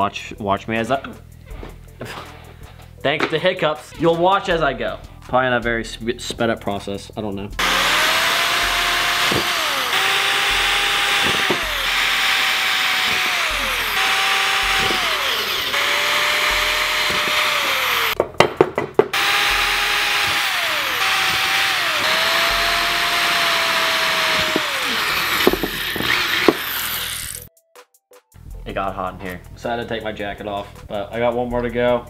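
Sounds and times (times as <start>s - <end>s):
power drill boring into metal: 7.6s - 18.2s, 19.2s - 27.5s.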